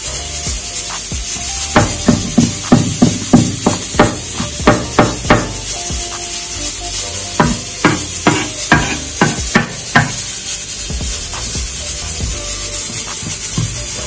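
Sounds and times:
knife chopping on wooden board: 7.4s - 10.2s.

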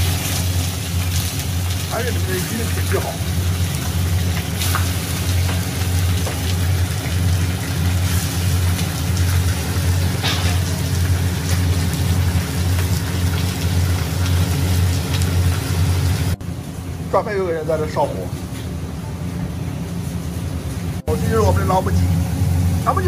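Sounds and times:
fish sizzling in a wok: 0.0s - 16.4s
kitchen fan humming: 0.0s - 23.0s.

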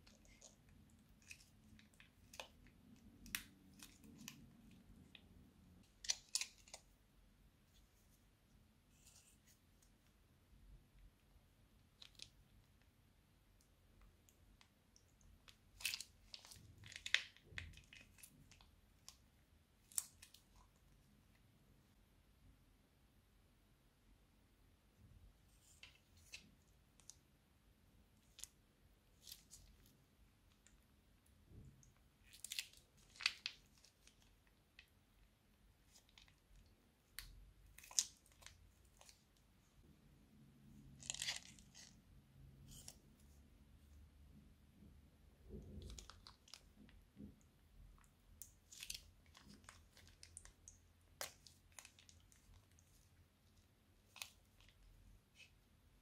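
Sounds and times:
plastic piping bag crinkling: 0.0s - 6.9s, 15.2s - 19.2s, 32.2s - 34.9s, 40.9s - 42.0s, 45.5s - 47.0s, 48.4s - 55.6s.

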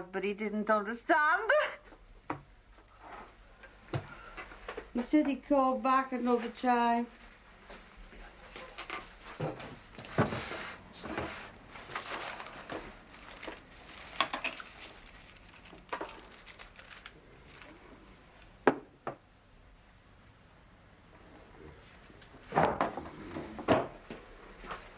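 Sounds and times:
clatter of things on a table: 8.6s - 14.7s, 22.5s - 24.0s.

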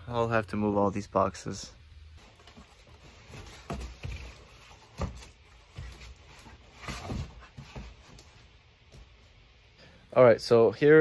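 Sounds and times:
cardboard boxes thumping: 2.2s - 8.3s.

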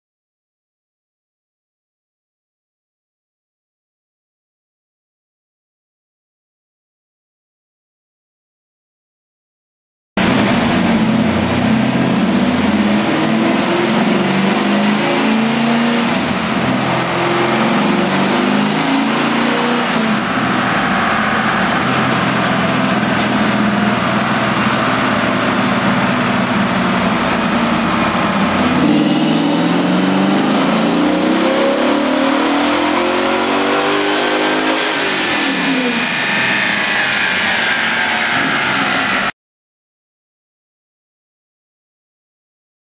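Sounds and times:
car engine revving on dyno: 10.2s - 39.3s.

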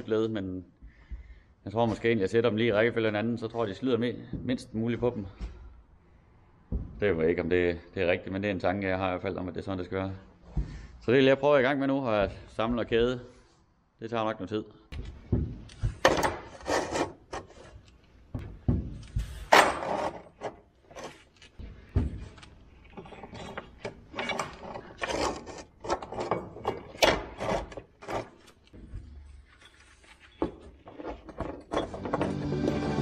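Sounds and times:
chain links clanking on steel floor: 29.2s - 32.5s.

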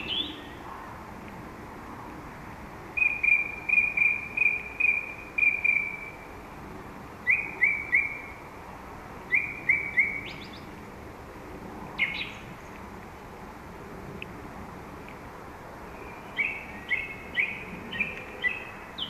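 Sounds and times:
song thrush singing: 0.0s - 0.7s, 2.9s - 6.4s, 7.2s - 8.5s, 9.2s - 10.8s, 11.9s - 12.8s, 15.8s - 19.0s.

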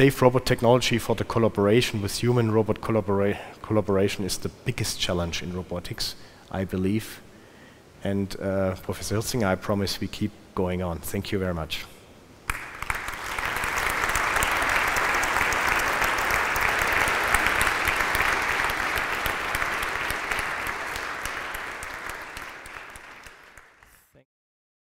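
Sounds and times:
audience applauding: 12.5s - 24.0s.

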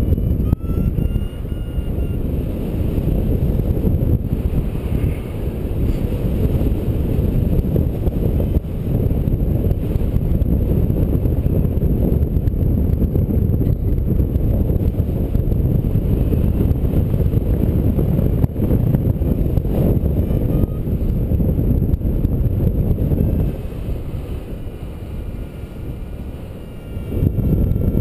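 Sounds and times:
wind rushing over microphone: 0.0s - 28.0s.

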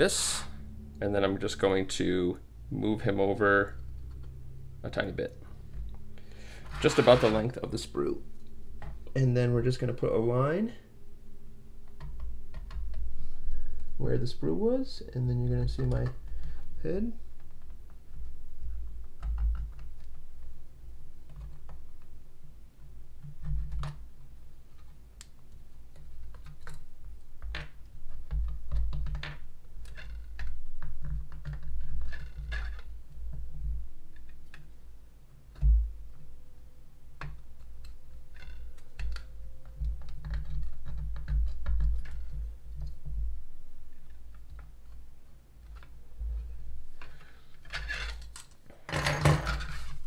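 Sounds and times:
metal tool scratching plastic: 6.6s - 7.5s, 47.6s - 48.5s
plastic parts clicking: 37.2s - 43.2s.

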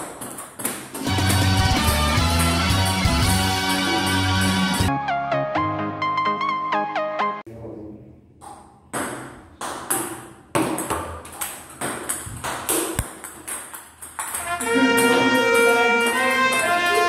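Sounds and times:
brass fanfare music: 1.1s - 7.4s, 14.4s - 17.0s.

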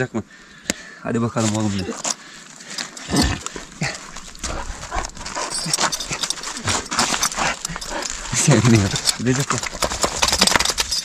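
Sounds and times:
cloth and collar rustling and clicking: 1.4s - 11.0s
dog breathing: 2.1s - 9.4s.

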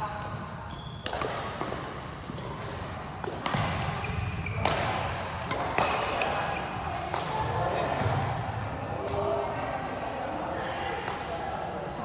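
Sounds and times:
racket striking shuttlecock: 1.0s - 6.5s.

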